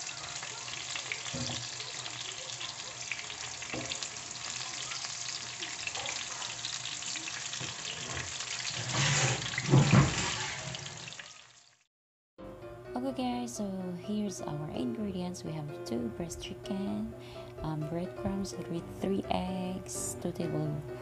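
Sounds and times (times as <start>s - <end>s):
chicken sizzling in hot oil: 0.0s - 11.9s.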